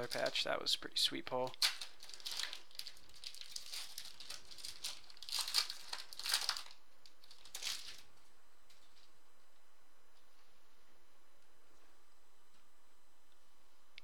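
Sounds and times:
foil wrapper crinkling: 0.0s - 0.6s, 1.5s - 9.1s.

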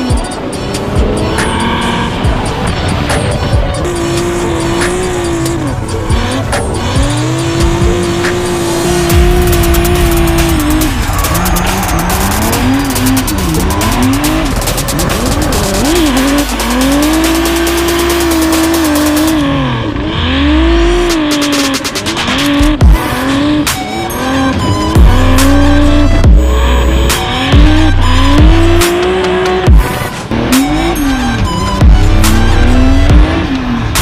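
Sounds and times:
car engine revving hard: 0.0s - 34.0s
tyres squealing: 9.2s - 19.3s.

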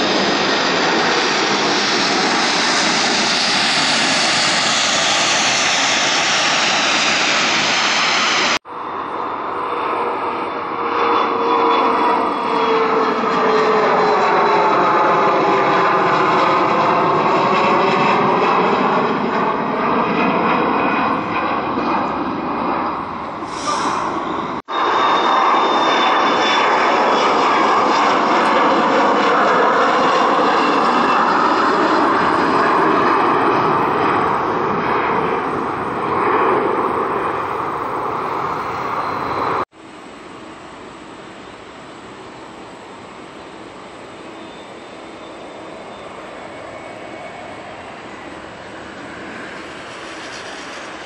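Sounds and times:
jet engines passing overhead: 0.0s - 51.0s
quiet jet on approach: 0.0s - 51.0s
high fan whine: 37.6s - 50.0s.

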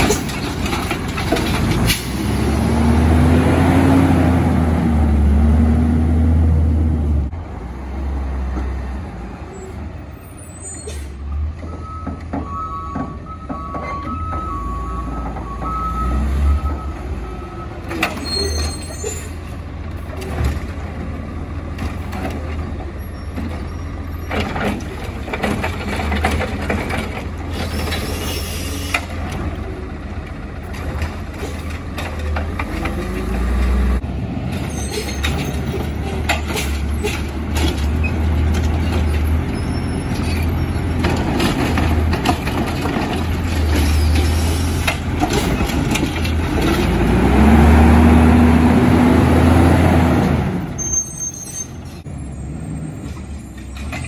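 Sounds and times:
knocks and clanks: 0.0s - 2.1s, 11.6s - 14.6s, 21.7s - 28.0s, 34.5s - 47.0s
reversing beeper: 11.7s - 18.8s
air brake hiss: 27.7s - 29.0s.

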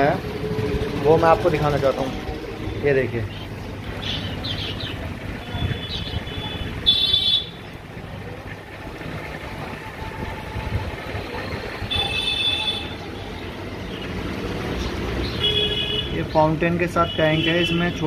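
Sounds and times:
street traffic noise: 0.0s - 18.0s
high-pitched vehicle horn toots: 5.6s - 7.6s.

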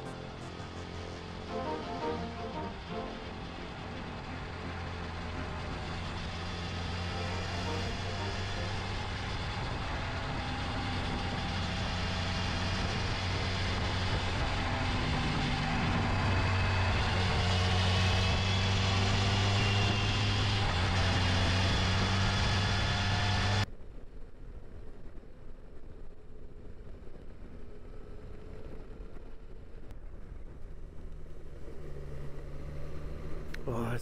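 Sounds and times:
motorcycle engine cruising: 0.0s - 23.7s, 26.9s - 33.8s
road noise: 0.0s - 34.0s.

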